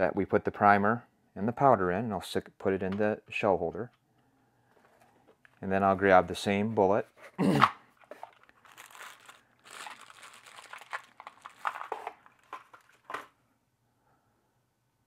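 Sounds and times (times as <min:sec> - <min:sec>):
plastic bag crinkling: 0:07.9 - 0:13.4.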